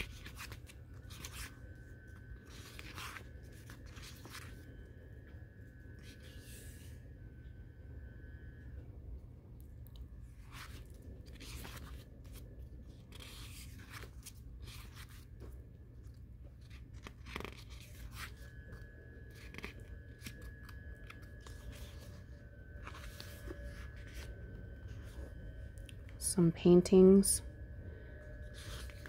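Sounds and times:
pages turning: 0:00.0 - 0:04.8, 0:10.3 - 0:25.9, 0:28.4 - 0:29.0.

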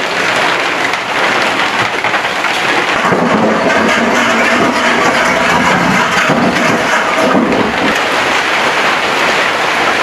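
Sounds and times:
heavy rain: 0:00.0 - 0:10.0
diesel engine running: 0:02.7 - 0:08.3.

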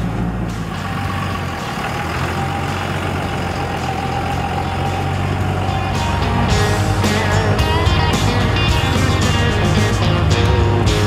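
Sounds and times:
truck engine at low revs: 0:00.0 - 0:11.0.

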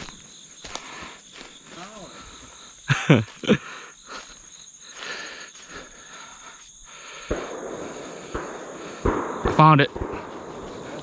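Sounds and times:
field insects buzzing: 0:00.0 - 0:11.0.

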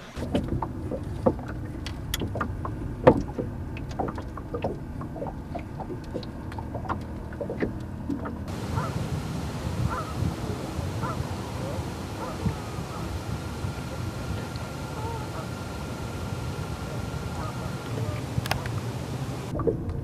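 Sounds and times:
low rumble: 0:00.0 - 0:20.0
wooden boat knocks and creaks: 0:00.2 - 0:08.5.

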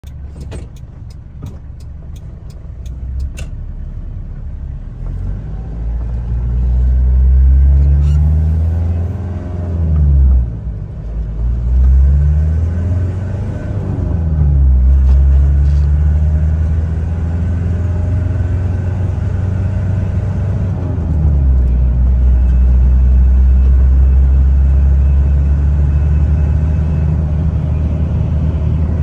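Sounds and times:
turn signal relay ticking: 0:00.0 - 0:03.6
diesel truck engine: 0:00.0 - 0:29.0.

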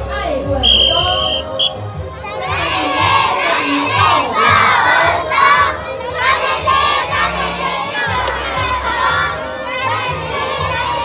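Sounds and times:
children shouting and cheering: 0:01.0 - 0:11.0.

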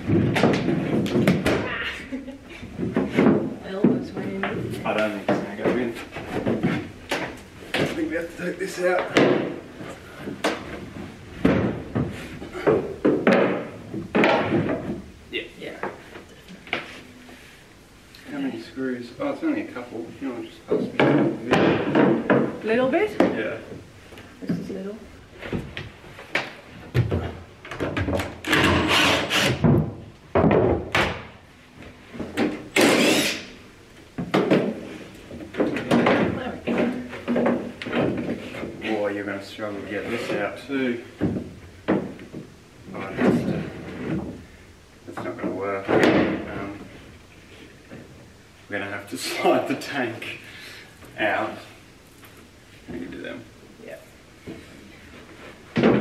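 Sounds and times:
knocks and bumps of boards: 0:00.0 - 0:01.8, 0:02.7 - 0:08.1, 0:08.8 - 0:15.1, 0:20.7 - 0:23.9, 0:25.4 - 0:28.8, 0:29.5 - 0:31.4, 0:34.2 - 0:38.8, 0:41.2 - 0:42.5, 0:45.2 - 0:46.6, 0:55.7 - 0:56.0.

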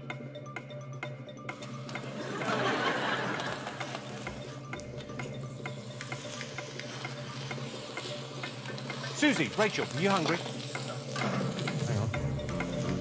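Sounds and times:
food sizzling on griddle: 0:05.9 - 0:13.0.

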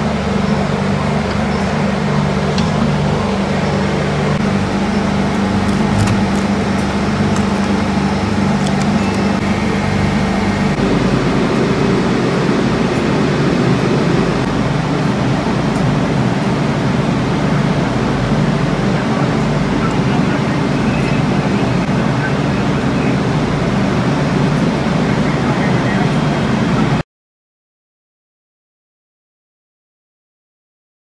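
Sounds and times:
machinery drone: 0:00.0 - 0:27.0
rough rumble: 0:00.6 - 0:16.4.

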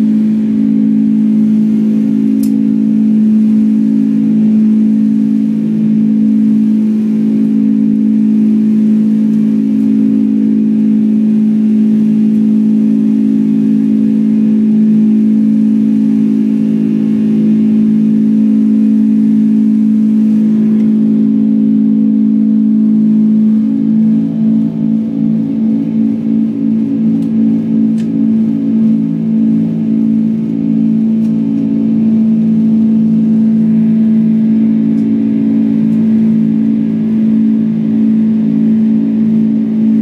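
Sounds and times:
airflow noise: 0:00.0 - 0:40.0
jet engine drone in cabin: 0:00.0 - 0:40.0.

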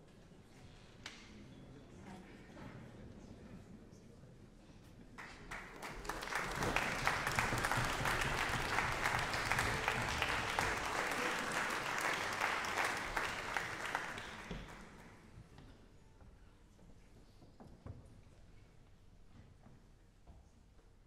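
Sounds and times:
audience applauding: 0:05.2 - 0:15.2.

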